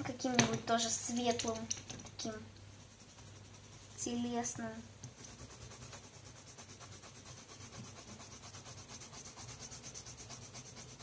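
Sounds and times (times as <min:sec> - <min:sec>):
pastel pencil shading on paper: 0:02.2 - 0:11.0.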